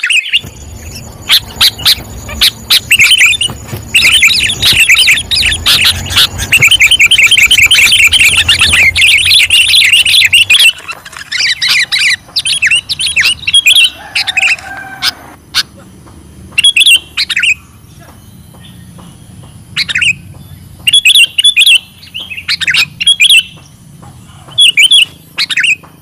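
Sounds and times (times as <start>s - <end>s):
bulbul chirping: 0.0s - 15.8s, 16.5s - 25.9s
low rumble: 0.4s - 10.6s.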